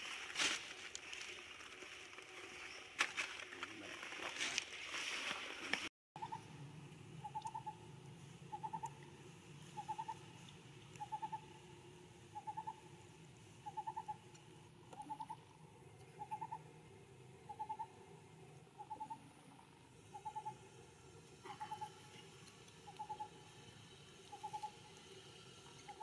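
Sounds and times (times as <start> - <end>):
low steady hum: 6.2 - 26.0.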